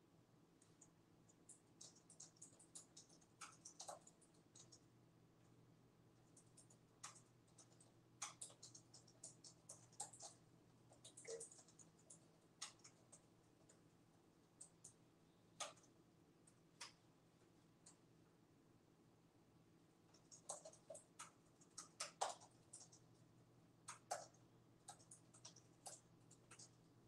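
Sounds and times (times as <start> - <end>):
low steady hum: 0.0 - 27.0
keyboard and mouse clicking: 0.6 - 4.9, 6.2 - 13.8, 14.4 - 15.0, 15.6 - 15.9, 20.1 - 26.9.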